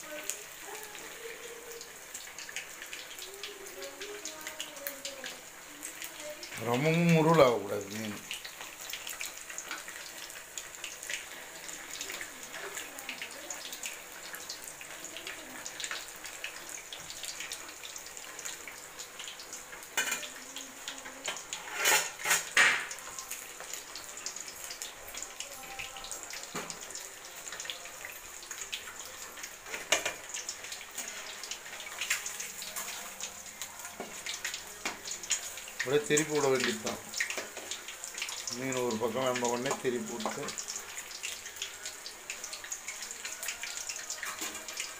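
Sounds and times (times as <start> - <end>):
fish sizzling in hot oil: 0.0 - 44.9
ladle scraping pan: 21.6 - 22.8.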